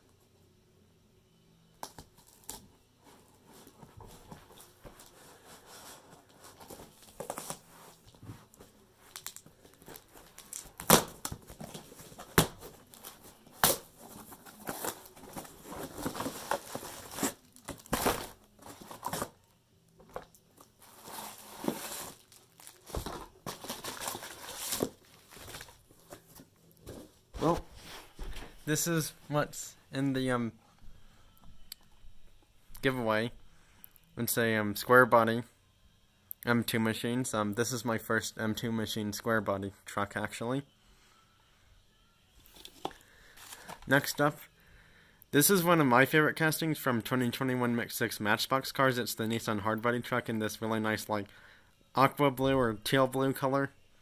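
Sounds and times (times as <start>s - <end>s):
packaging tearing and rustling: 9.1s - 19.4s, 20.2s - 26.3s.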